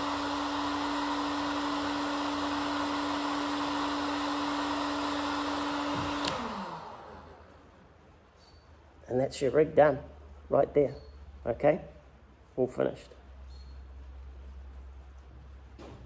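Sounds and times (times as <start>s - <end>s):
heat gun blowing hot air: 0.0s - 7.4s
fan winding down: 0.0s - 7.6s
switch click: 6.1s - 6.5s.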